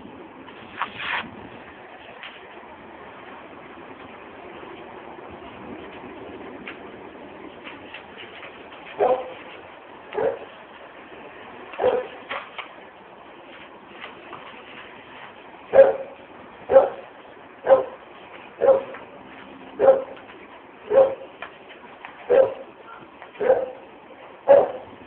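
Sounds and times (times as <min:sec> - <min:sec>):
dog barking: 0:09.0 - 0:09.4, 0:10.2 - 0:10.5, 0:11.8 - 0:12.2, 0:15.7 - 0:16.1, 0:16.7 - 0:17.0, 0:17.6 - 0:18.0, 0:18.6 - 0:19.0, 0:19.8 - 0:20.2, 0:20.9 - 0:21.3, 0:22.3 - 0:22.6, 0:23.4 - 0:24.9.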